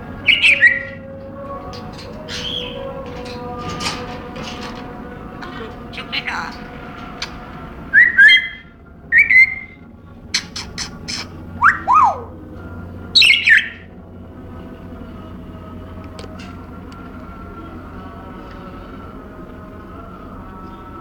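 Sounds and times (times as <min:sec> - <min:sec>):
parrot whistling: 0:00.2 - 0:01.0, 0:07.9 - 0:12.4, 0:13.2 - 0:13.9
parrot squawk: 0:00.3 - 0:01.0, 0:09.2 - 0:12.3, 0:13.2 - 0:13.8.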